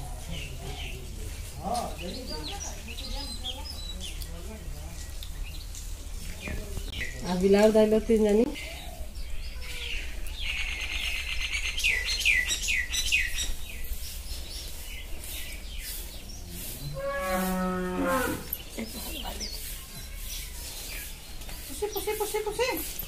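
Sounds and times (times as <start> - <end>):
small birds chirping: 0.0 - 23.0
low mooing call: 16.8 - 18.6.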